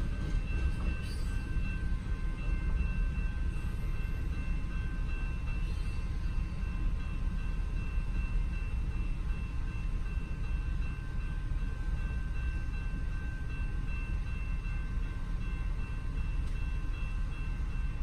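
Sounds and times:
crossing warning bell ringing: 0.0s - 18.0s
freight train rumbling: 0.0s - 18.0s.

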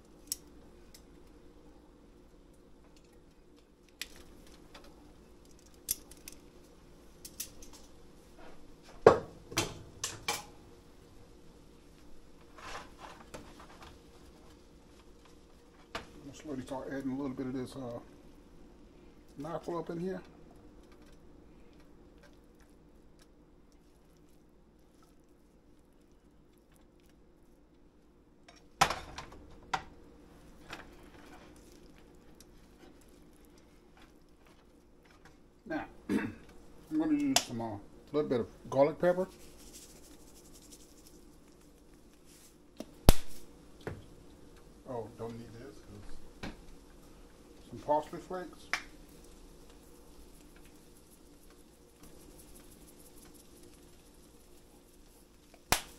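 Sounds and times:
tongs clacking against a skillet: 0.1s - 1.2s, 2.9s - 6.5s, 7.2s - 8.0s
spatula scraping a frying pan: 12.5s - 13.8s.

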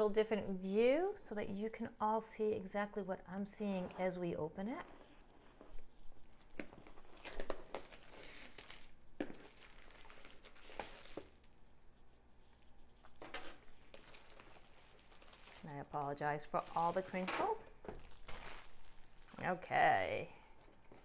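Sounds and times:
shrink wrap crinkling: 4.9s - 19.6s.

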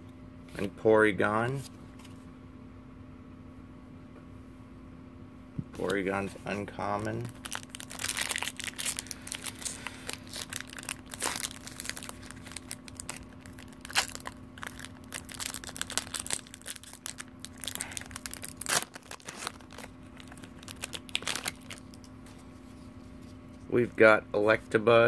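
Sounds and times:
foil wrapper crinkling and tearing: 6.8s - 22.2s.

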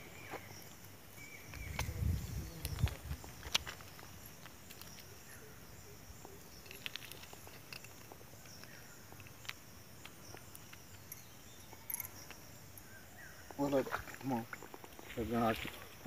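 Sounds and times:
insect chorus: 0.0s - 16.0s
small clicks and rustles: 0.2s - 5.4s, 6.2s - 12.6s.

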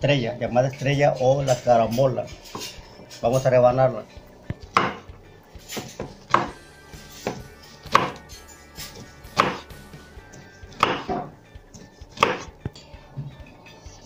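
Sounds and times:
knife slicing fruit: 4.5s - 12.7s.

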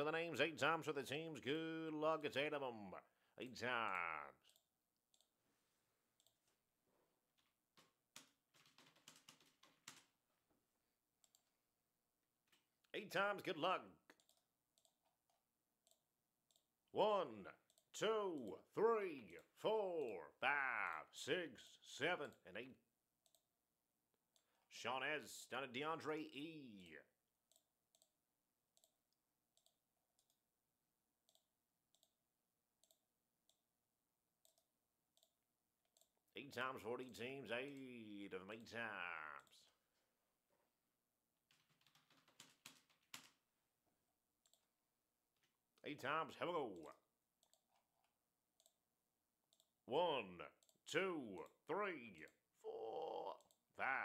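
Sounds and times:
computer mouse clicks: 6.2s - 6.5s, 14.1s - 16.7s, 27.5s - 28.1s, 28.8s - 30.4s, 31.2s - 32.2s, 32.8s - 33.6s, 44.4s - 44.7s, 46.8s - 48.8s
keyboard typing: 7.3s - 10.2s, 11.2s - 11.6s, 14.1s - 16.7s, 41.4s - 43.5s, 44.4s - 44.7s, 46.7s - 48.8s.

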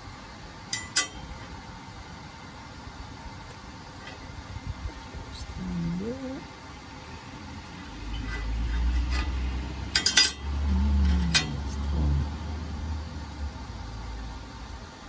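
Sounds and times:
steel clinking: 0.7s - 1.5s, 8.1s - 11.9s
wind rumble on microphone: 4.5s - 5.9s.

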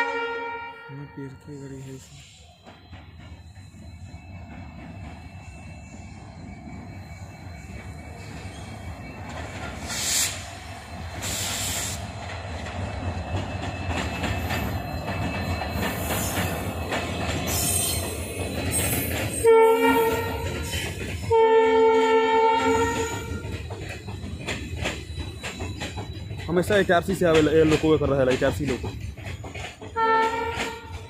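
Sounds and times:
locomotive horn blasts: 0.0s - 1.4s, 19.4s - 20.4s, 21.3s - 23.4s, 30.0s - 30.9s
diesel locomotive engine rumble: 0.8s - 31.0s.

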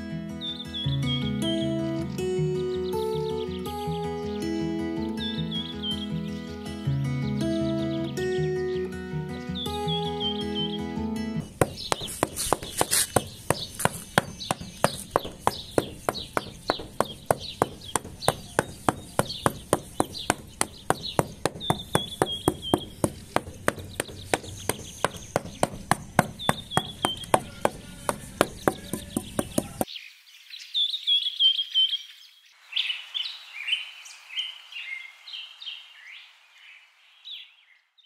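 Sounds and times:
falling bird chirps: 7.6s - 32.2s.

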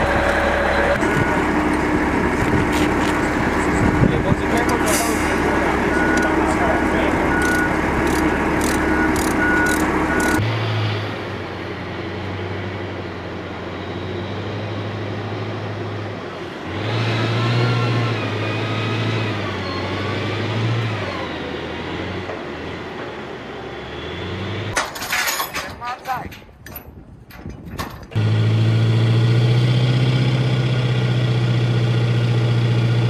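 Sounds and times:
armored vehicle engine drone: 0.0s - 25.2s, 27.8s - 33.0s
vehicle backup alarm beeping: 0.4s - 1.7s, 5.2s - 10.4s.

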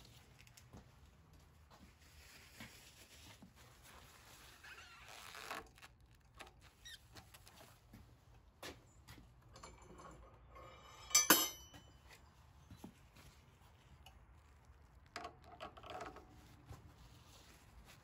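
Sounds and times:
metal tool clinking on metal: 9.5s - 12.1s.

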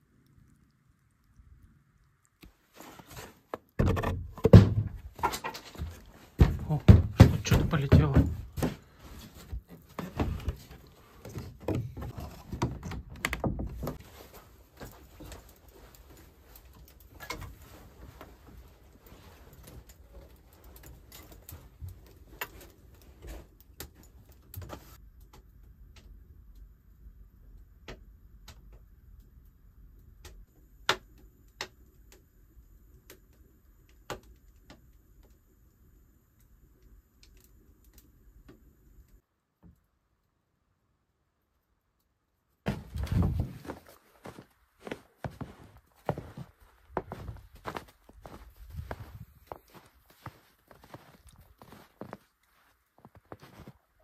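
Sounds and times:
wood fire crackling and popping: 0.0s - 39.2s
rustling and handling knocks: 3.1s - 15.5s.

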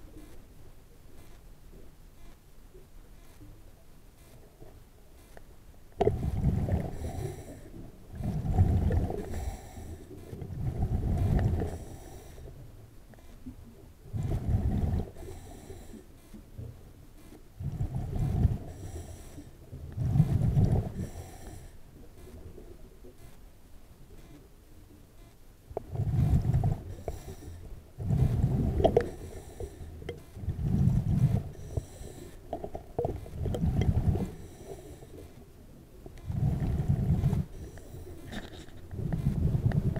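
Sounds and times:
hissing regulator inhalations: 6.0s - 8.3s, 9.1s - 10.4s, 11.3s - 12.5s, 14.2s - 16.4s, 18.6s - 19.6s, 20.2s - 21.8s, 26.3s - 32.6s, 33.2s - 35.4s, 36.2s - 39.8s
underwater exhaled bubbles: 6.0s - 12.4s, 14.0s - 15.9s, 17.6s - 21.6s, 25.7s - 35.2s, 36.1s - 39.9s.

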